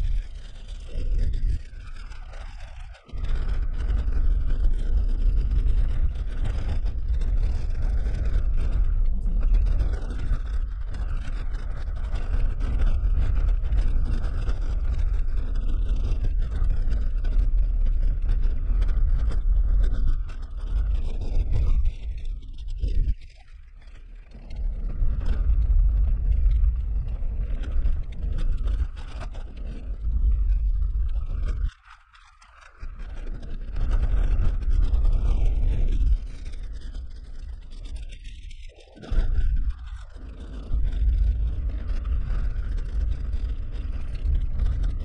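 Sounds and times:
gravel crunching: 32.6 - 45.0.

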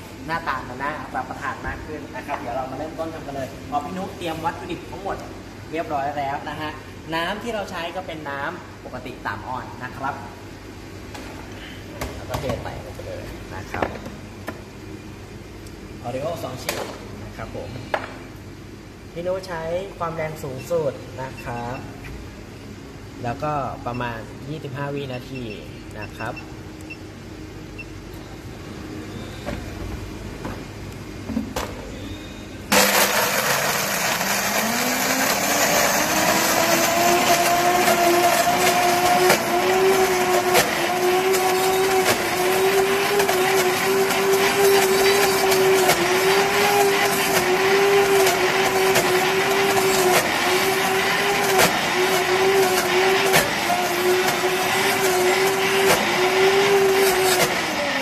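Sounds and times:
blender motor running: 32.7 - 58.0.

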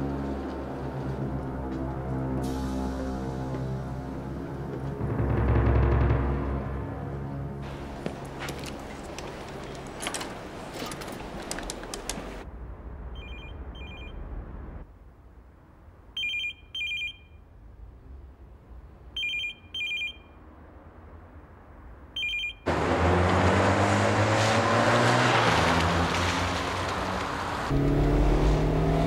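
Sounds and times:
telephone ringing: 16.2 - 17.4, 19.2 - 20.4, 22.2 - 22.7
car engine accelerating: 22.7 - 29.0.

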